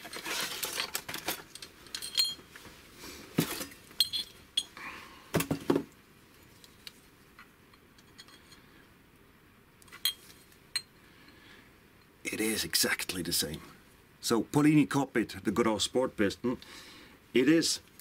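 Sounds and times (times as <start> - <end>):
metal parts clinking: 0.0 - 2.4, 3.5 - 4.8.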